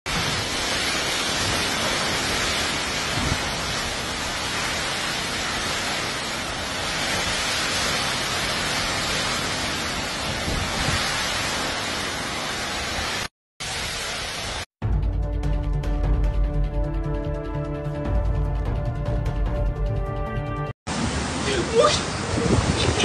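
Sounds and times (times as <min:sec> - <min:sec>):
heavy wind-driven rain: 0:00.1 - 0:14.7, 0:20.9 - 0:23.0
hurricane wind: 0:00.1 - 0:14.7, 0:20.9 - 0:23.0.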